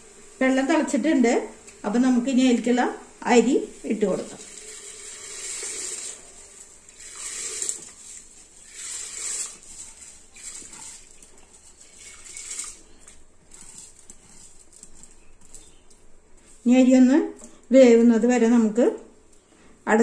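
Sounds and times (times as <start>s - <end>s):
rice pattering into water: 4.4s - 14.9s.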